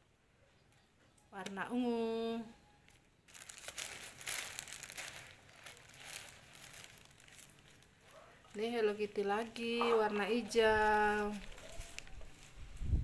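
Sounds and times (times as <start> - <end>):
plastic bag crinkling and rustling: 2.8 - 13.0.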